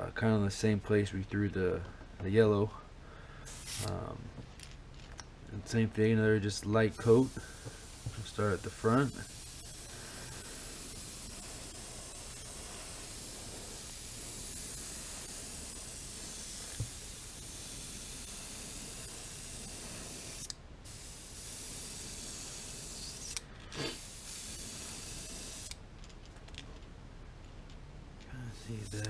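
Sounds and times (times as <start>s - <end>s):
airbrush spraying hiss: 3.4s - 4.1s, 6.9s - 25.8s, 28.4s - 29.0s.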